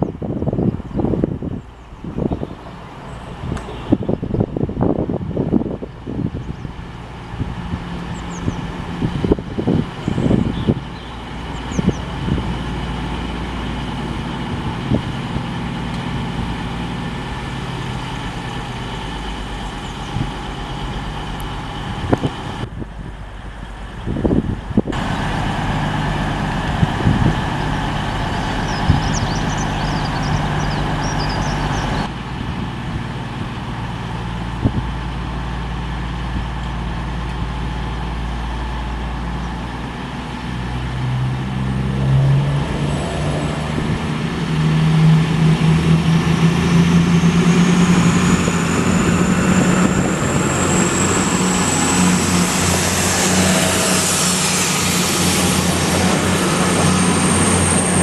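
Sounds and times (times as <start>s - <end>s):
diesel train engines: 0.0s - 58.0s
high-pitched whine: 42.0s - 58.0s.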